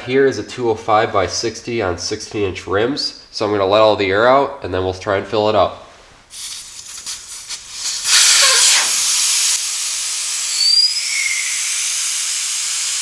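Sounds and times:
air hissing from tyre valve: 6.3s - 13.0s
brief whistling tones: 10.4s - 12.7s.

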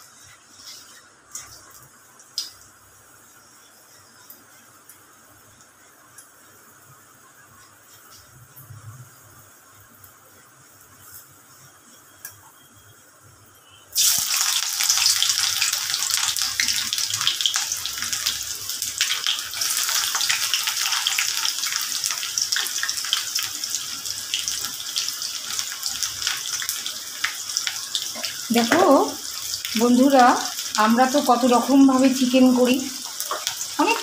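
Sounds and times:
onion sizzling in hot oil: 13.6s - 34.0s
crackling oil spatters: 14.0s - 23.3s, 25.4s - 34.0s.

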